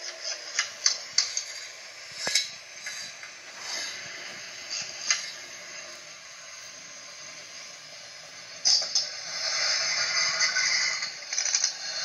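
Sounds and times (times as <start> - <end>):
sharp clicks and ticks: 0.0 - 3.4
steady hiss: 0.0 - 12.0.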